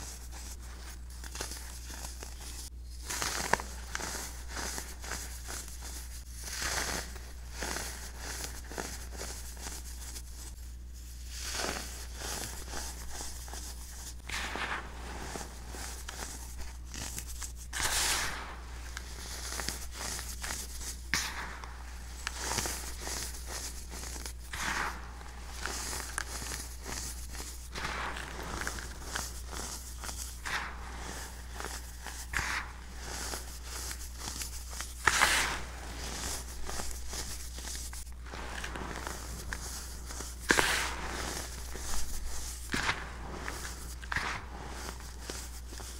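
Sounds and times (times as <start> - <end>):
steady low hum: 0.0 - 45.9
baking soda crunching between fingers: 15.1 - 45.9.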